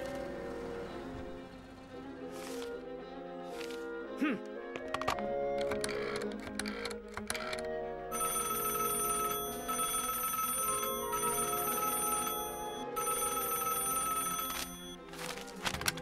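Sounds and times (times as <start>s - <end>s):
old telephone bell ringing: 8.1s - 15.1s.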